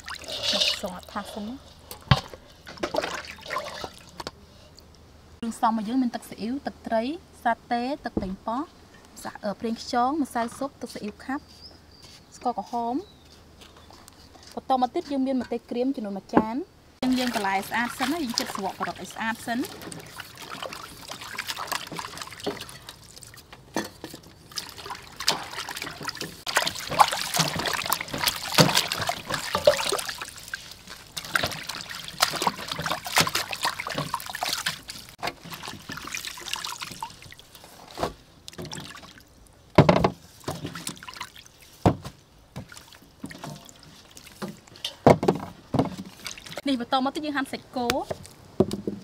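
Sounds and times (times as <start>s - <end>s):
water splashing in a steel bowl: 0.0s - 4.3s, 17.0s - 37.7s, 38.5s - 39.3s, 40.3s - 41.8s, 42.6s - 45.0s, 45.8s - 46.8s.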